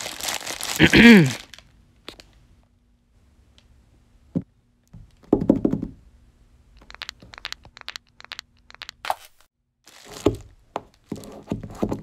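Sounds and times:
sharp clicks and ticks: 0:06.8 - 0:09.1.

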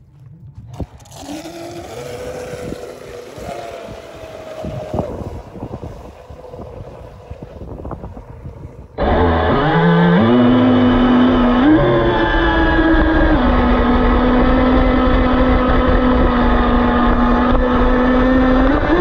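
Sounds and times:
wind noise on microphone: 0:00.0 - 0:19.0
electric motor whine: 0:00.7 - 0:19.0.

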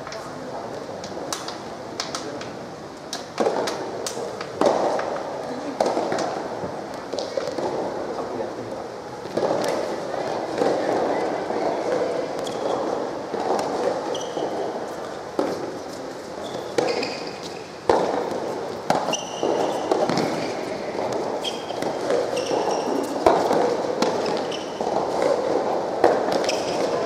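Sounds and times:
background noise: 0:00.0 - 0:27.0
rackets striking tennis ball: 0:01.0 - 0:27.0
sneaker squeaks on court: 0:12.4 - 0:13.0, 0:14.0 - 0:14.6, 0:16.4 - 0:17.8, 0:19.0 - 0:20.6, 0:21.4 - 0:23.2, 0:24.1 - 0:24.8, 0:26.3 - 0:27.0.

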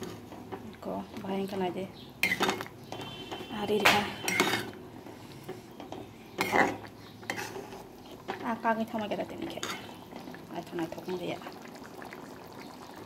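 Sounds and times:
metal ladle scraping a pan: 0:02.2 - 0:10.3.

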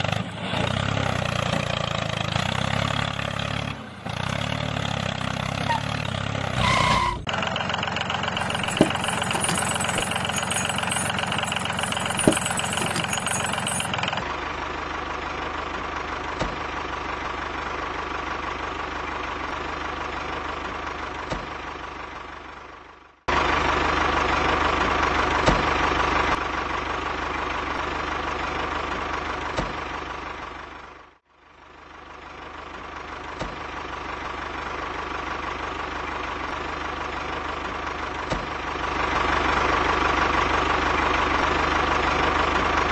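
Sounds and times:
tractor engine chugging: 0:08.4 - 0:14.2.

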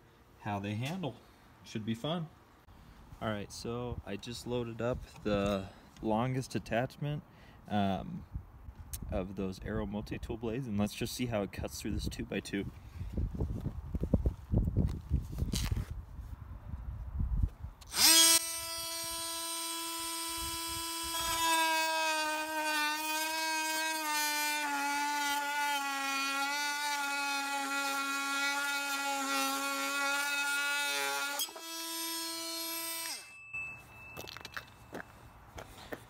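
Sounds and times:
blade cutting wood: 0:17.8 - 0:33.4
oscillating multi-tool buzzing: 0:17.8 - 0:33.8.

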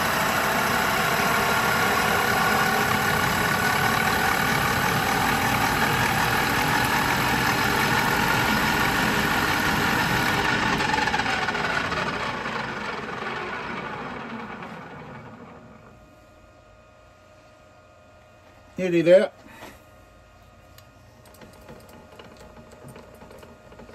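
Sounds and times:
metal lathe whine: 0:00.0 - 0:16.0.

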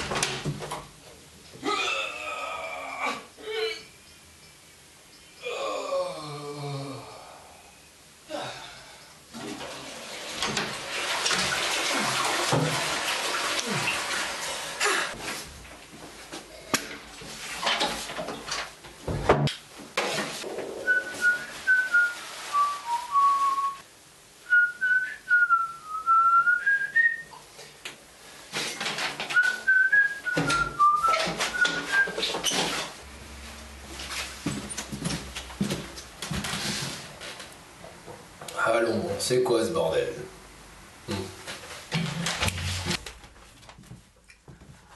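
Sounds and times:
running water rushing: 0:09.4 - 0:15.3
man whistling a tune: 0:20.8 - 0:23.8, 0:24.5 - 0:27.3, 0:29.4 - 0:32.2.

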